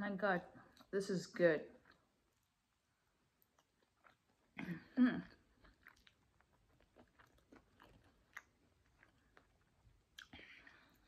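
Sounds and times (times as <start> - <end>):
chewing meat: 1.7 - 11.0
wet mouth clicks and smacks: 5.6 - 10.7.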